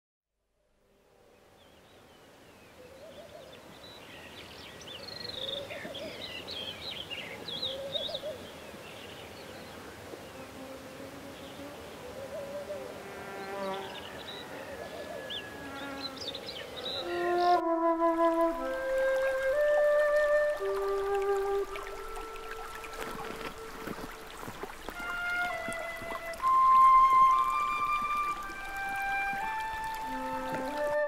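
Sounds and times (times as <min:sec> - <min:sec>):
insects buzzing: 0:12.8 - 0:14.2, 0:15.5 - 0:20.0
flute-like music notes: 0:16.9 - 0:31.0.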